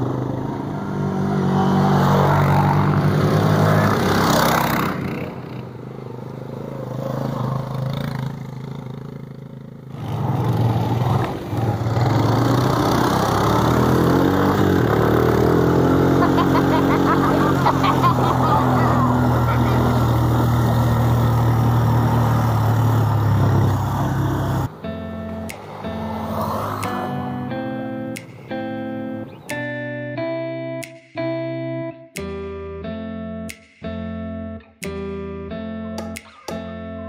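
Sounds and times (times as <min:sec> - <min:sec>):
atv engine running: 0:00.0 - 0:29.2.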